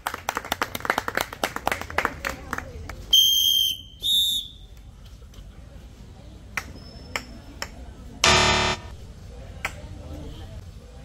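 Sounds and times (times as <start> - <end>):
bright electronic beep: 8.2 - 9.0
loud electronic buzz: 8.2 - 9.0.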